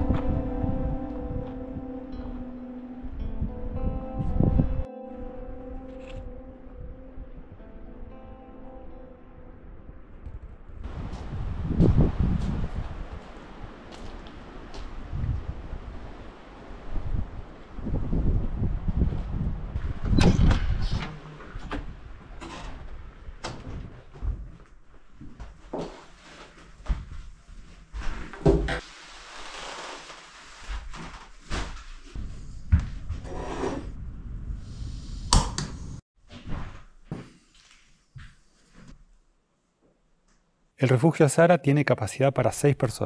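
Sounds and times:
wind rumbling on microphone: 0.0s - 2.0s, 3.1s - 4.9s, 10.0s - 24.6s, 32.1s - 36.0s
rustling: 22.4s - 33.1s.

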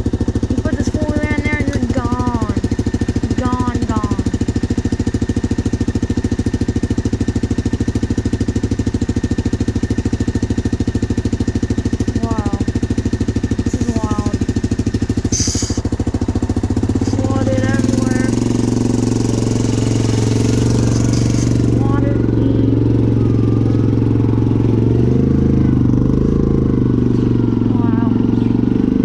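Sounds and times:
atv engine idling: 0.0s - 29.0s
short wavering calls: 15.3s - 15.9s.

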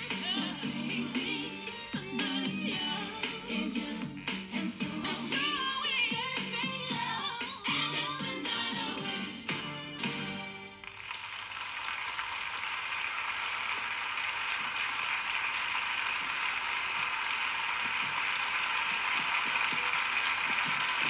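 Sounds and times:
music: 0.0s - 11.0s, 18.9s - 21.0s
audience applause: 10.8s - 21.0s.

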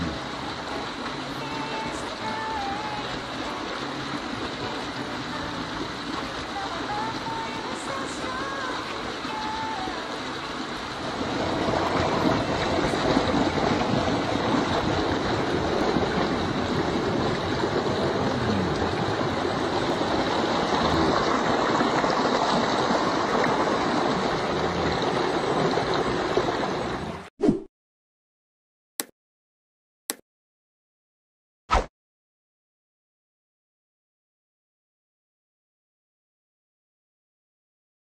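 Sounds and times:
stream water flowing over rocks: 0.0s - 27.3s.

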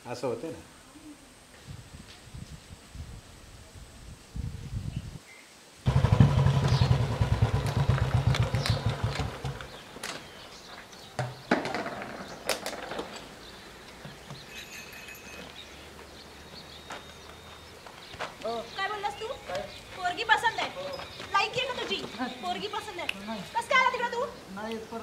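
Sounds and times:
motorcycle engine running: 5.9s - 9.9s.

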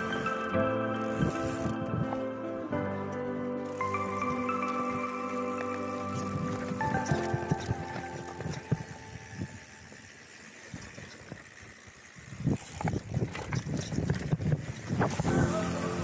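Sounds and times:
mountain bike tyre noise: 0.0s - 16.0s
bike rattling over rough ground: 3.6s - 16.0s.

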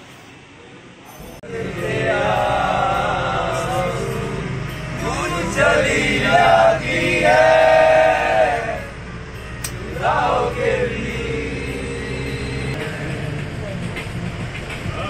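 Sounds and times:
bus engine drone: 0.0s - 15.0s
men singing together: 1.4s - 9.0s, 9.8s - 12.9s.

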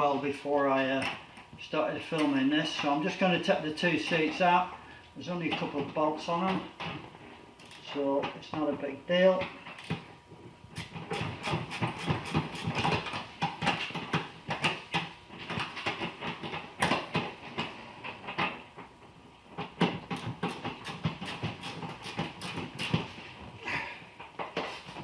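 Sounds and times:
hand tools clicking on bolts: 20.1s - 23.0s.

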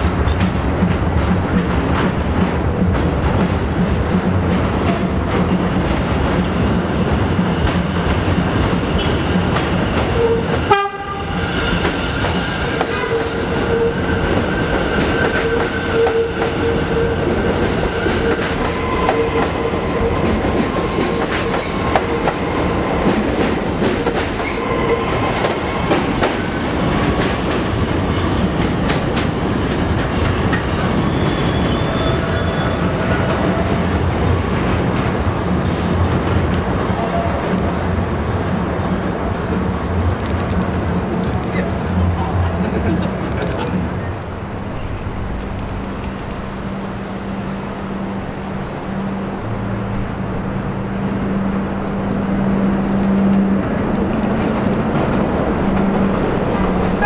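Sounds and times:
subway train wheels clickety-clack: 0.0s - 57.0s.

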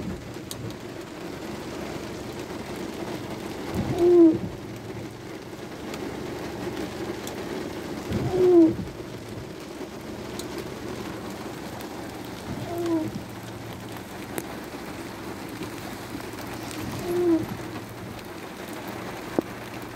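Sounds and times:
rain and moving car hiss: 0.0s - 19.9s
windshield wiper squeak and thump: 3.7s - 4.6s, 8.1s - 8.9s, 12.4s - 13.4s, 16.6s - 17.8s.

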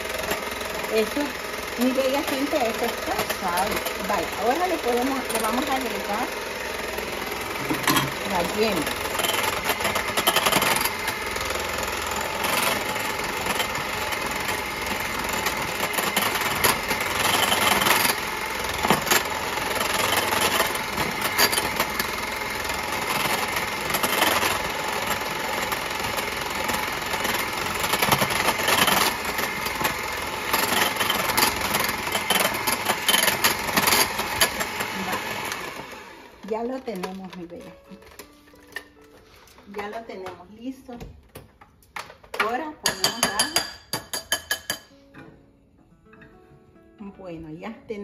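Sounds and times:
electric hand mixer running: 0.0s - 37.3s.

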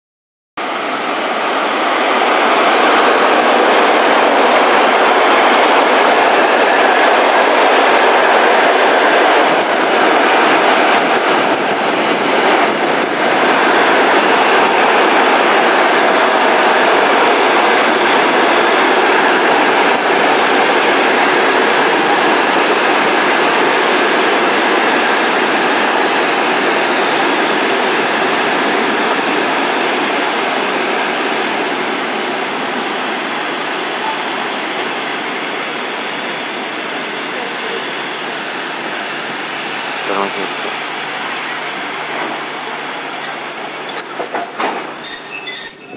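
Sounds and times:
train wheels rumbling on rails: 0.9s - 45.9s
wheel clacks over rail joints: 42.1s - 45.9s.

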